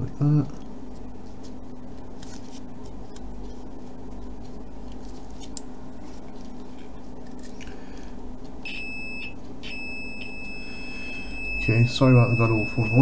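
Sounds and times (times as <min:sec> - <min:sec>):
steady low hum: 0:00.0 - 0:13.0
multimeter continuity beep: 0:08.6 - 0:13.0.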